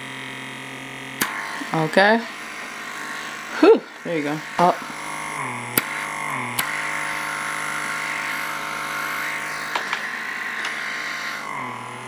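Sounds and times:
vacuum pump humming: 0:00.0 - 0:12.0
sharp clicks: 0:05.7 - 0:07.2.

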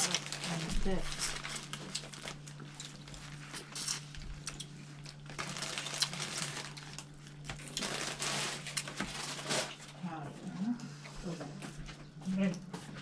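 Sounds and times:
prawn shells cracking: 0:00.0 - 0:09.8
low steady hum: 0:00.0 - 0:13.0.

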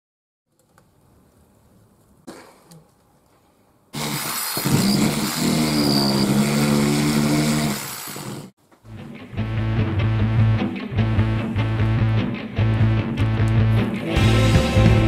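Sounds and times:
power saw cutting wood: 0:04.0 - 0:08.6.

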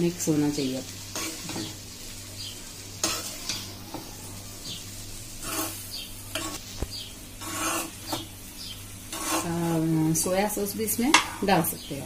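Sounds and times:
light sizzle: 0:00.0 - 0:12.0
metal spoon scraping pan: 0:01.1 - 0:01.8, 0:03.0 - 0:04.1, 0:05.4 - 0:06.6, 0:07.4 - 0:08.2, 0:09.1 - 0:09.8, 0:11.0 - 0:11.7.

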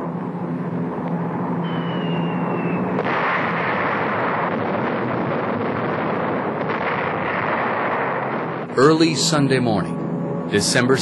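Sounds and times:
aircraft engine droning: 0:00.0 - 0:11.0
rumble of explosions: 0:00.0 - 0:11.0
high falling whistle: 0:01.6 - 0:03.0.

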